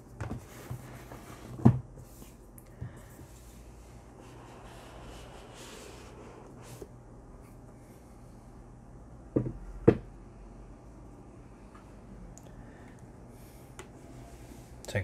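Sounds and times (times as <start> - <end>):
cardboard sliding with papery rubbing: 4.1 - 6.9
cardboard knocking on wooden desk: 9.3 - 10.0.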